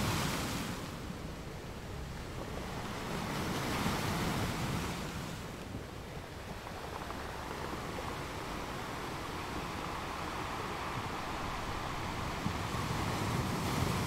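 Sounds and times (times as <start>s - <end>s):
ocean surf breaking: 0.0s - 1.1s, 6.3s - 14.0s.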